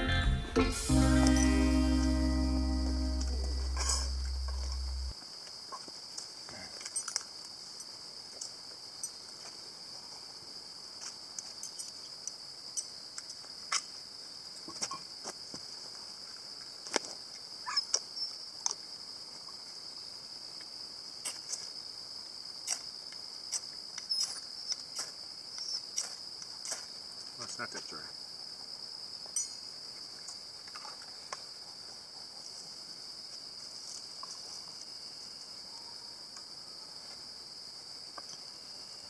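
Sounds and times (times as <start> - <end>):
insect chorus: 0.6 - 39.0
fire steel scraping: 3.5 - 5.1.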